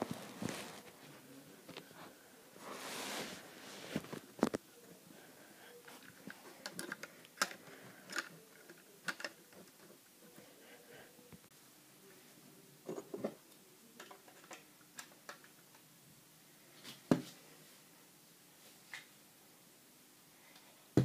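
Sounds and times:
soft rustle: 0.0 - 8.1.

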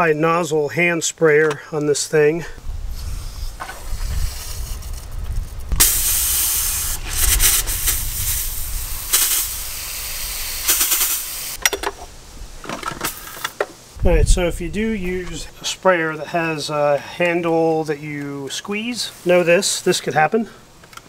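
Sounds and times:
hose sprayer hissing: 2.9 - 5.1, 5.7 - 11.6.

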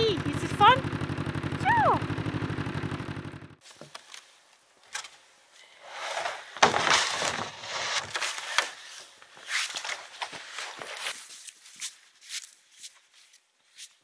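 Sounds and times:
snowmobile engine running: 0.0 - 3.6
footsteps crunching in snow: 6.1 - 14.0.

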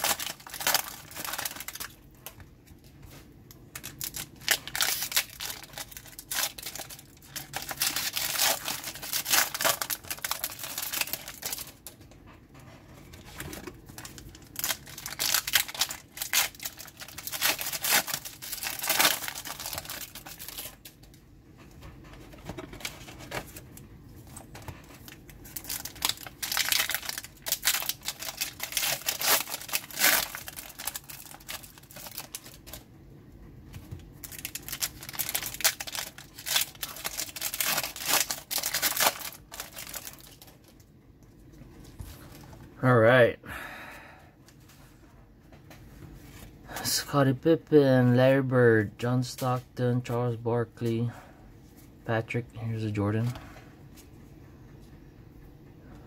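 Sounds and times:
foil wrappers tearing and crinkling: 0.0 - 2.4, 3.7 - 12.0, 13.2 - 21.0, 24.3 - 32.8, 34.2 - 40.8.

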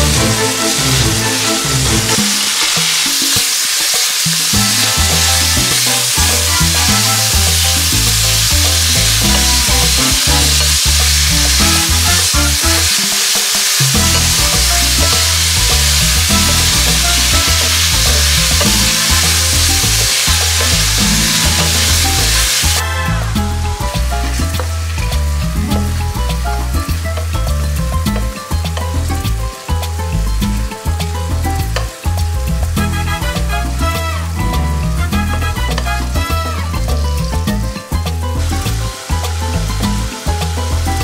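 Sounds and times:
background music low notes: 0.0 - 3.0, 4.1 - 41.0
food sizzling in frying pan: 0.0 - 41.0
wooden spatula stirring: 13.7 - 22.8.

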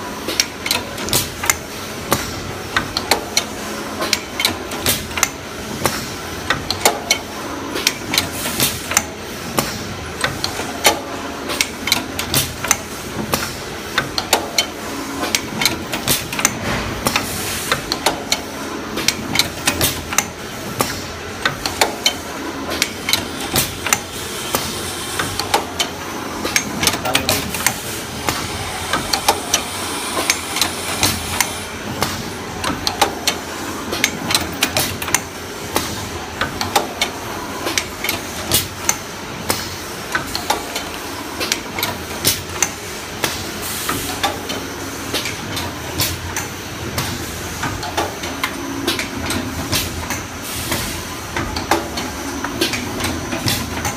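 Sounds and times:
steady mechanical running noise: 0.0 - 53.9
machine sharp clicks and knocks: 0.3 - 53.9.

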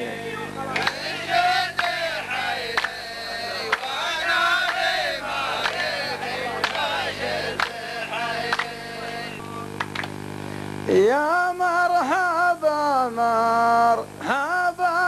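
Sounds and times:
men chanting in unison: 0.0 - 9.4
sharp hand claps: 0.7 - 5.0, 5.6 - 6.0, 6.6 - 6.9, 7.5 - 10.2.

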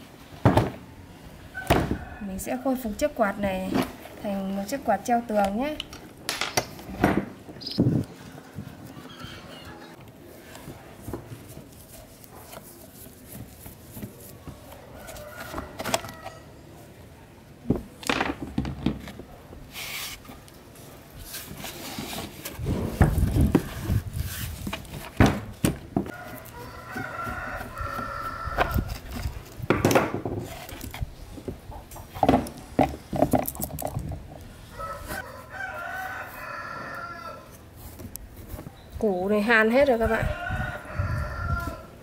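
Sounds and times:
rooster crowing: 1.5 - 2.4, 14.9 - 16.6, 26.1 - 28.9, 34.7 - 37.6, 40.0 - 42.0.

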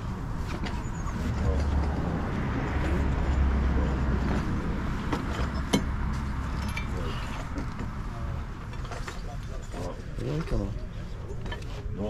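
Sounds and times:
metal parts being handled: 5.1 - 8.0.

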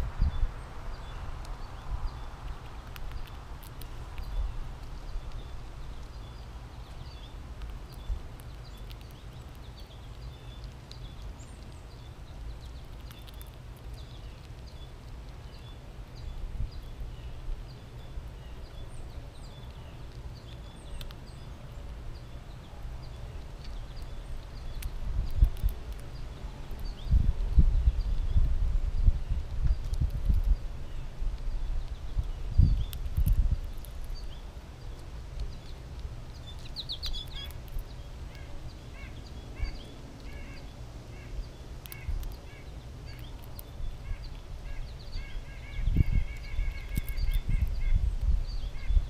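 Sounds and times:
squirrel cracking and chewing seeds: 0.0 - 49.0
small sharp clicks: 19.6 - 21.2, 46.4 - 47.8
distant birds chirping: 29.2 - 49.0.

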